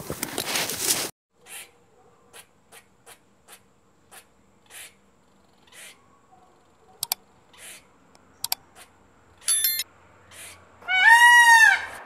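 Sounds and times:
squirrel rasping: 1.4s - 5.0s, 7.0s - 9.5s.

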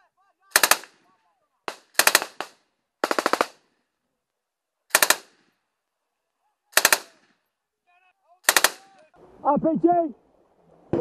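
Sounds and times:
automatic gunfire bursts: 0.5s - 1.0s, 1.7s - 3.6s, 4.9s - 5.3s, 6.8s - 7.2s, 8.4s - 8.8s.

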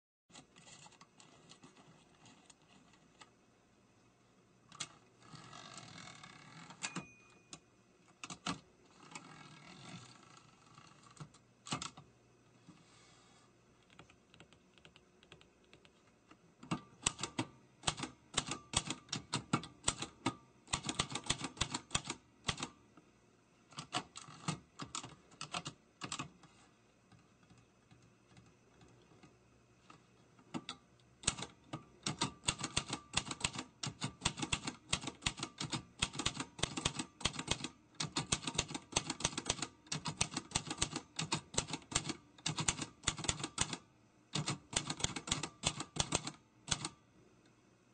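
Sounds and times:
typewriter key strikes: 6.7s - 7.6s, 16.7s - 22.7s.

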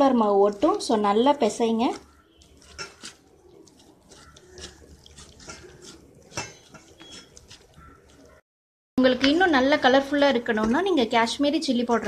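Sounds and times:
hand squelching wet batter: 0.0s - 8.4s.

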